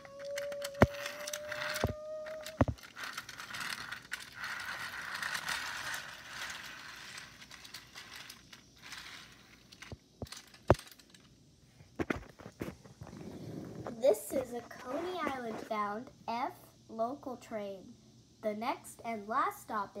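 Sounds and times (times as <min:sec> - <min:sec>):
toy train motor whirring: 0:00.0 - 0:11.3.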